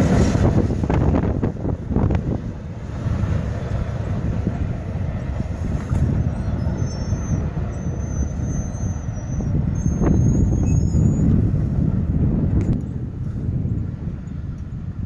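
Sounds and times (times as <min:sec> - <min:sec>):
freight train rumble: 0:00.0 - 0:15.0.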